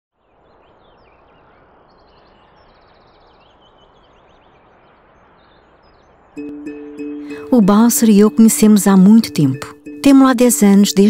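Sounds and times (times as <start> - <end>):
small birds chirping and trilling: 0.2 - 7.4
steady background hiss: 0.2 - 11.0.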